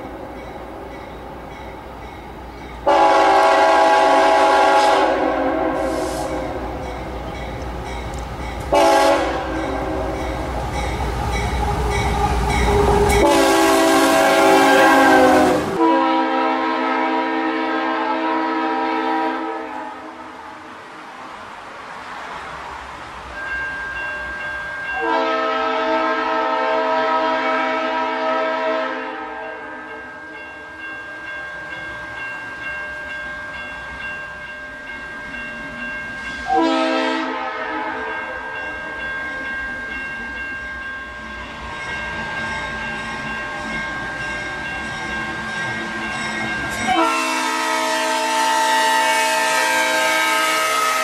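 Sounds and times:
locomotive horn blasts: 2.8 - 6.8, 8.7 - 10.5, 12.6 - 20.2, 25.0 - 29.6, 36.4 - 38.2, 46.9 - 51.0.

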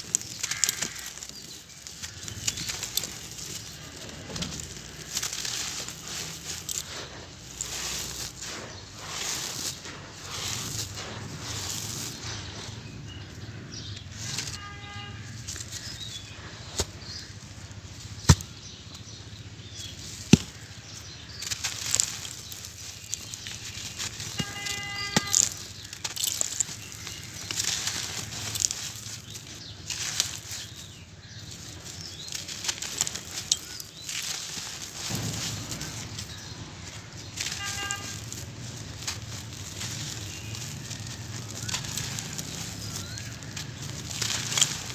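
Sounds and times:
sand pouring onto floor: 0.0 - 12.6, 31.5 - 44.9
lumps snapping: 0.0 - 12.7, 16.6 - 44.9
sand lumps crunching in hands: 0.0 - 44.9.

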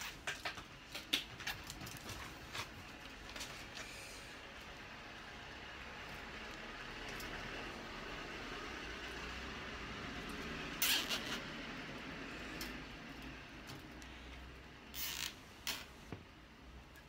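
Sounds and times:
cable tie ratcheting zip: 10.8 - 11.5, 14.9 - 15.9.

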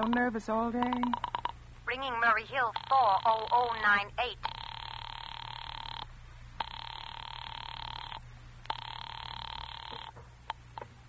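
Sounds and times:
sharp clicks: 0.0 - 1.6
telephone ringing tone: 0.9 - 10.2.

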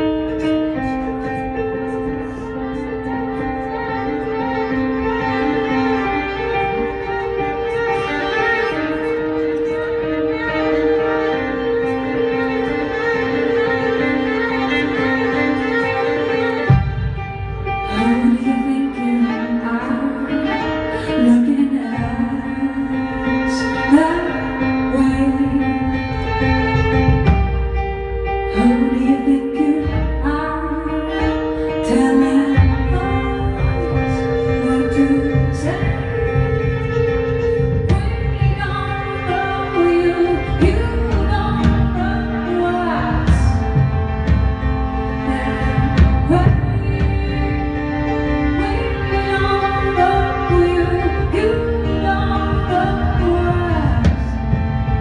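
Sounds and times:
keyboard: 0.0 - 55.0
violin: 0.0 - 55.0
woman singing: 17.8 - 26.4, 28.5 - 43.9, 45.2 - 54.6.

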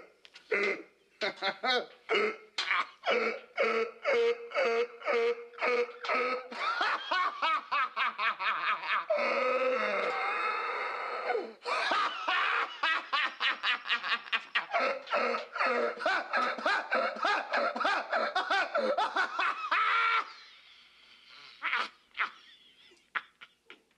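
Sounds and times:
man laughing hard: 3.0 - 9.9, 11.6 - 20.4.

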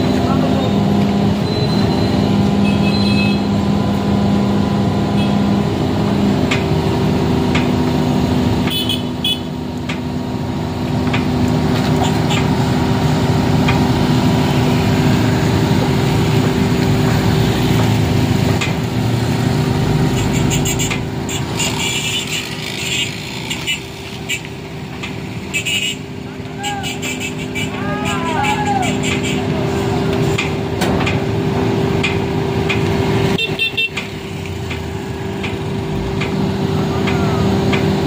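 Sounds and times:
excavator diesel engine running: 0.0 - 38.0
motorcycles passing: 10.2 - 38.0.

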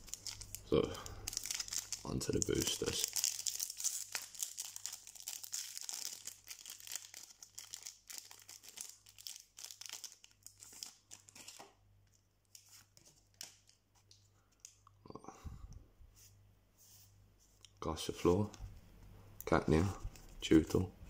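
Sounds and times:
foil wrapper tearing and crinkling: 0.0 - 11.7
cards rustling and clicking: 9.8 - 11.8.

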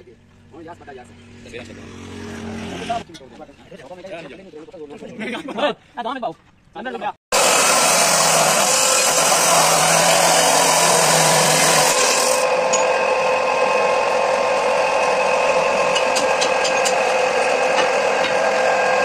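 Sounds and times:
power tool running: 7.3 - 19.0.

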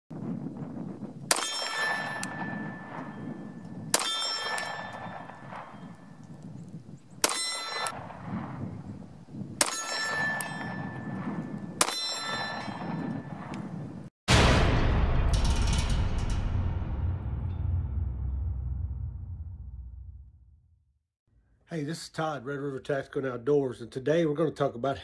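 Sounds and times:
pistol shots: 1.3 - 6.1, 7.2 - 8.2, 9.6 - 13.6
steel target ringing: 1.3 - 6.2, 7.2 - 8.0, 9.6 - 13.4, 14.3 - 19.0.

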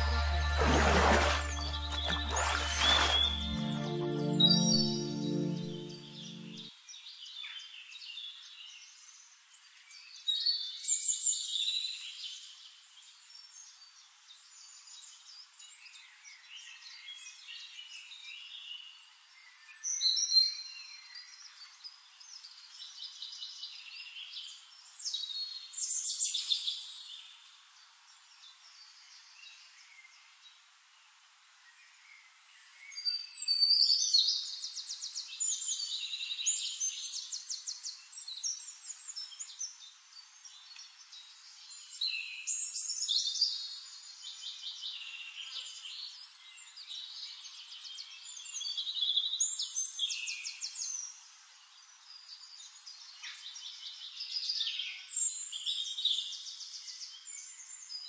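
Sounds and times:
birds chirping and whistling: 1.2 - 6.6.

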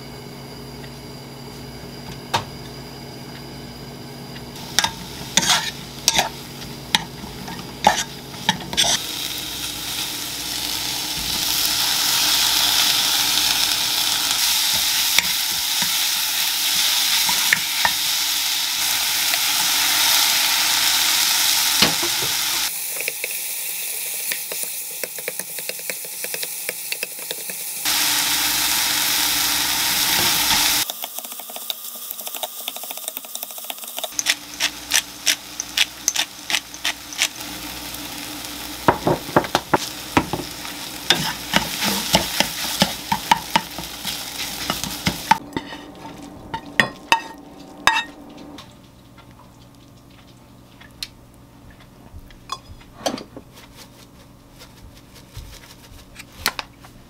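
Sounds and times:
vegetables sizzling in oil: 4.6 - 48.1
spatula scraping a pan: 4.8 - 6.4, 7.0 - 9.1, 41.1 - 46.1
utensils clicking against pan: 30.8 - 37.4.

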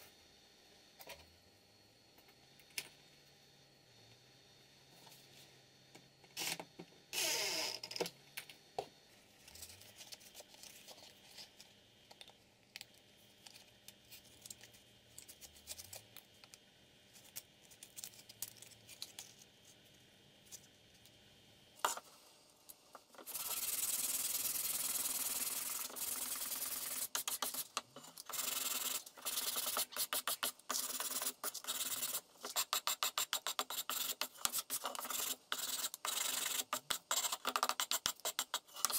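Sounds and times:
sanding block scratching wood: 23.2 - 38.9.

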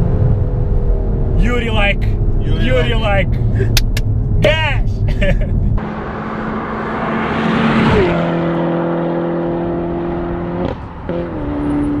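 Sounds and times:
car accelerating past: 5.8 - 12.0.

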